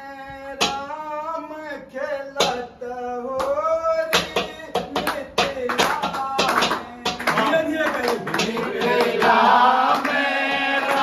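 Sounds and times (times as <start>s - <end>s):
hand claps: 0.6s - 0.9s, 2.4s - 2.6s, 3.3s - 11.0s
men singing folk song: 8.2s - 11.0s.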